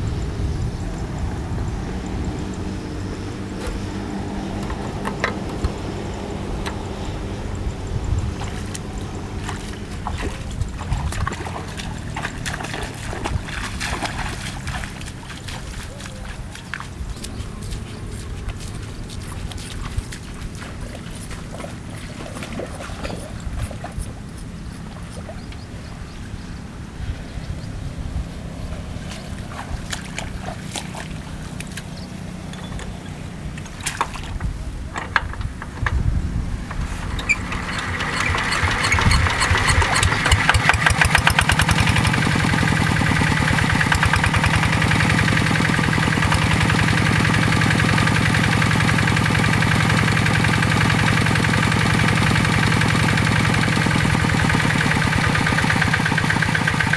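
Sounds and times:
diesel engine running: 0.0s - 56.9s
footsteps squelching through mud: 1.8s - 27.4s, 28.2s - 34.9s, 36.4s - 56.9s
sharp clicks and knocks: 4.5s - 6.9s, 32.5s - 47.4s.

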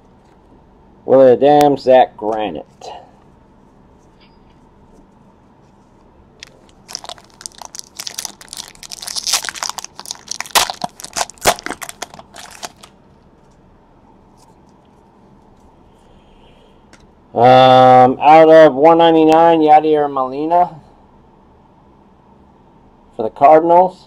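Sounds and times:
foil wrapper crinkling: 6.4s - 13.0s.

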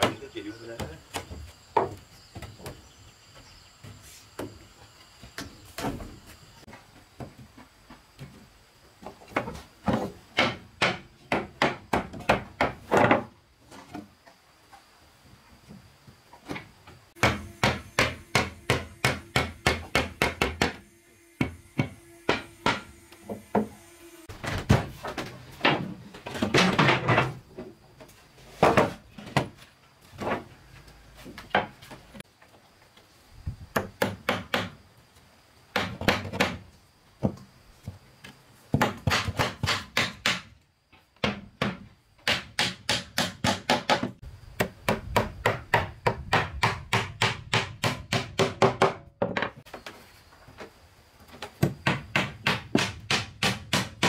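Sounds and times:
hammer striking wooden boards: 9.9s - 13.3s, 17.2s - 20.8s, 21.4s - 23.8s, 33.7s - 34.8s, 38.8s - 40.5s, 41.2s - 49.5s, 51.6s - 54.0s.

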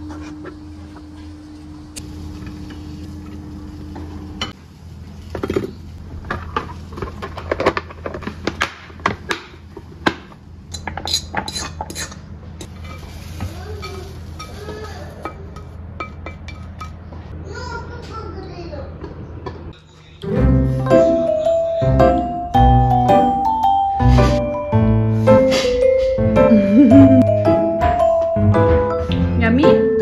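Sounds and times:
low hum: 26.5s - 27.4s.

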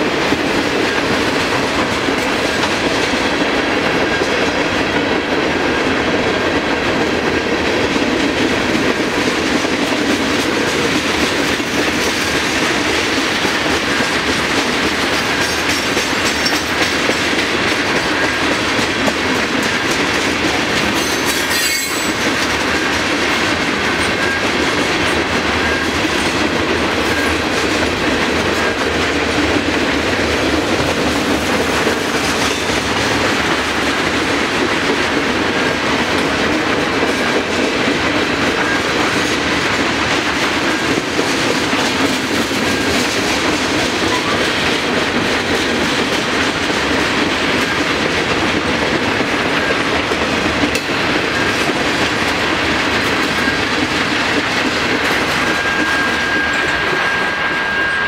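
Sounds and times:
freight train rumbling past: 0.0s - 58.0s
wheels clicking over rail joints: 7.8s - 35.3s.

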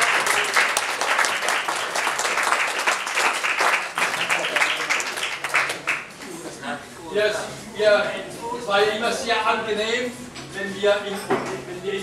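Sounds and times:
people applauding: 0.0s - 6.3s.

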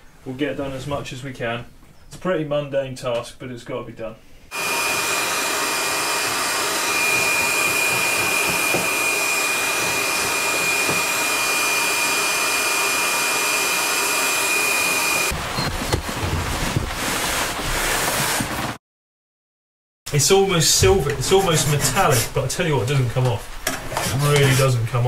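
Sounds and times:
heat gun blowing: 4.5s - 15.4s
rough noise with knocks: 6.8s - 11.3s, 15.0s - 18.8s.

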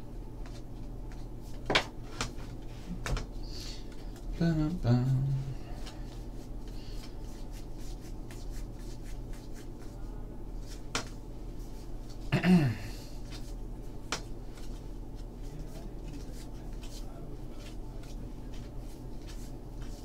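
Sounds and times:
person humming briefly: 4.4s - 5.8s, 12.3s - 13.1s.

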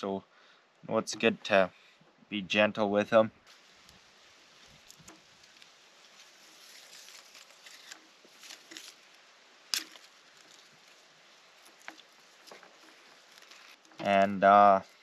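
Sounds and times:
light rustling: 3.5s - 15.0s.

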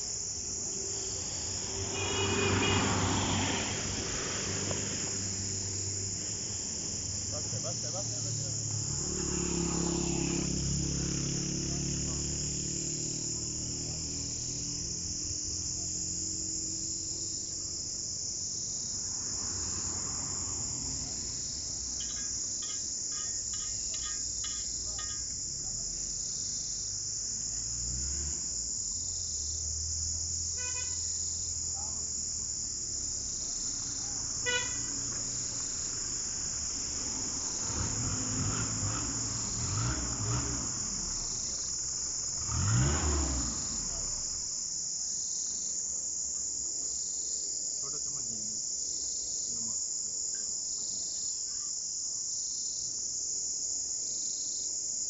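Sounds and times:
insects chirring: 0.0s - 55.0s
vehicle horn short toots: 1.8s - 3.1s, 30.6s - 31.0s, 34.4s - 35.0s.

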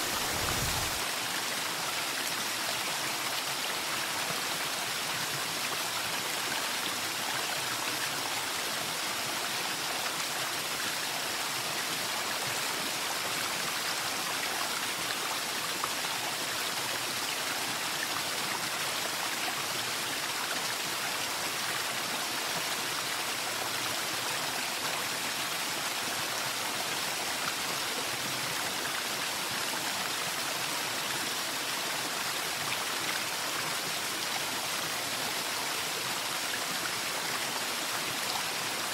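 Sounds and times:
running water: 0.0s - 7.0s.

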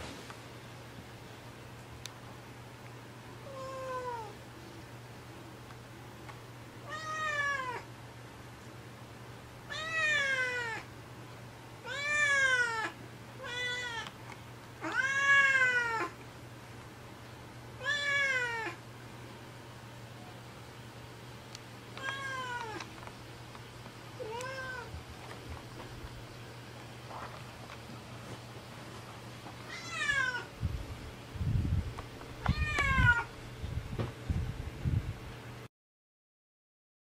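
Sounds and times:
cat meowing: 3.4s - 4.4s, 6.8s - 7.9s, 9.7s - 10.9s, 11.8s - 14.1s, 14.8s - 16.2s, 17.8s - 18.8s, 22.0s - 22.8s, 24.2s - 25.0s, 29.6s - 30.5s, 32.4s - 33.3s.

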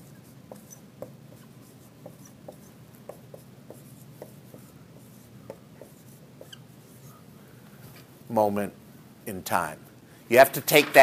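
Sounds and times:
marker squeaking on whiteboard: 0.0s - 7.2s.

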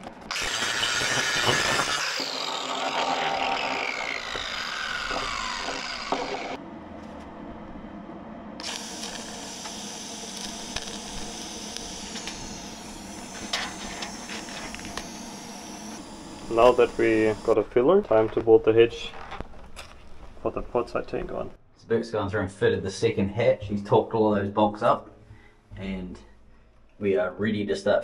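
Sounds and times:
angle grinder grinding steel: 0.0s - 6.6s, 8.6s - 21.5s
grinder whine spinning down: 0.0s - 21.5s
quiet steady hum: 4.5s - 28.0s.

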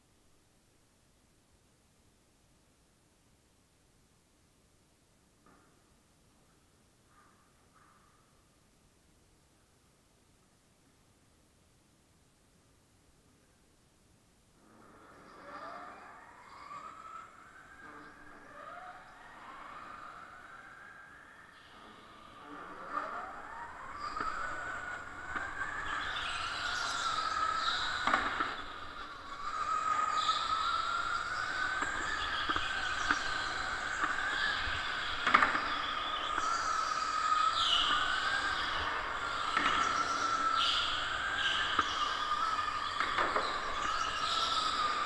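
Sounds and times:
electric go-kart motor whining: 14.6s - 45.0s.

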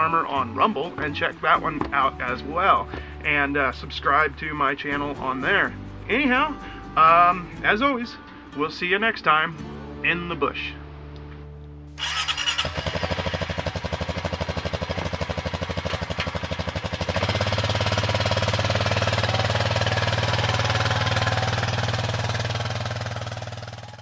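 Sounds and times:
atv engine idling: 12.0s - 24.0s.

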